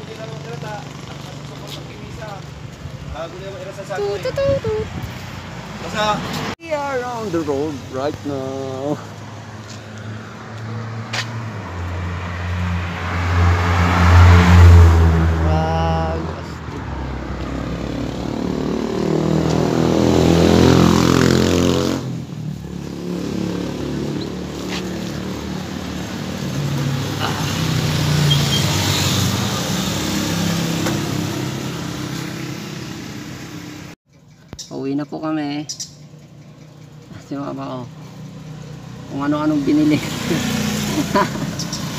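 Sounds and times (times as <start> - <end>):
small motorcycle engines revving: 0.0 - 2.4, 15.4 - 34.0, 36.3 - 41.9.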